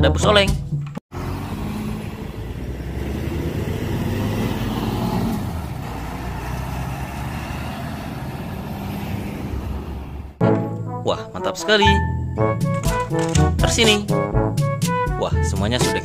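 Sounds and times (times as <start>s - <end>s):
bus driving past: 1.1s - 10.4s.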